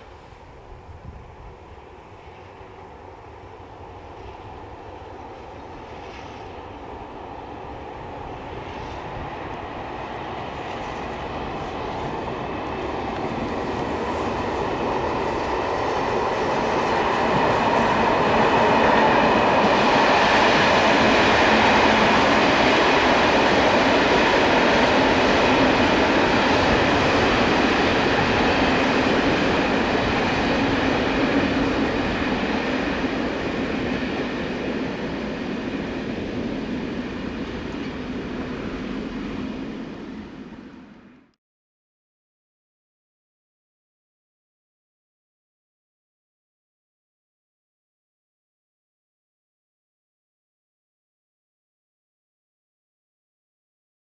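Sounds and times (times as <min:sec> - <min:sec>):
passenger train rumbling on rails: 0:00.0 - 0:41.4.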